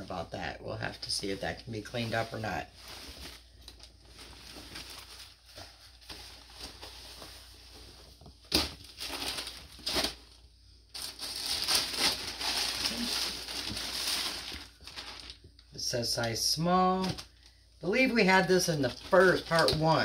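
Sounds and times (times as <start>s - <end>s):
plastic bag crinkling: 1.5s - 7.2s, 8.5s - 15.7s, 16.9s - 20.0s.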